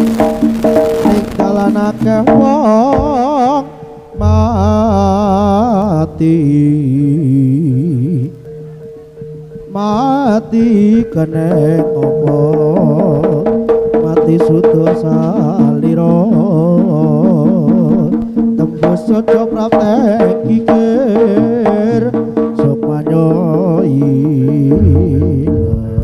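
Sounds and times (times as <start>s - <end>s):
steady held tone: 0.0s - 14.2s, 24.7s - 26.0s
hand-drum strokes: 0.0s - 26.0s
wavering ornamented melody: 3.9s - 11.1s.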